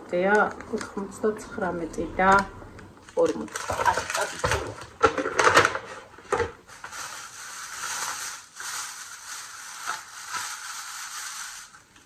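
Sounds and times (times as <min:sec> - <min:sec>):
shopping bags rustling: 0:03.1 - 0:05.8, 0:06.5 - 0:12.0.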